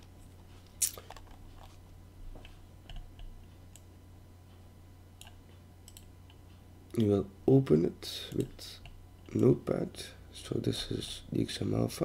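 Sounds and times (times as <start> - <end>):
faint low hum: 0.0 - 12.0
keyboard and mouse clicks: 5.2 - 6.4.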